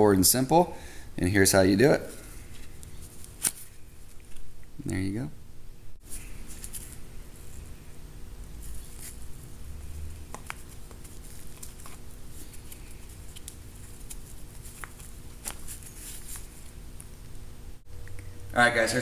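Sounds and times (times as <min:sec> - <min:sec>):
low steady hum: 0:00.0 - 0:19.0
strap rustling: 0:02.1 - 0:04.5, 0:06.0 - 0:08.0, 0:08.6 - 0:17.4.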